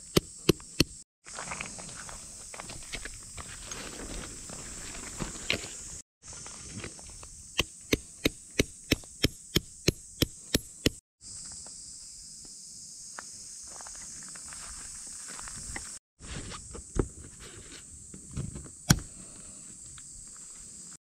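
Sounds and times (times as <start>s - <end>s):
high buzz of insects: 0.0s - 16.0s
hammer striking tent peg: 7.6s - 11.0s.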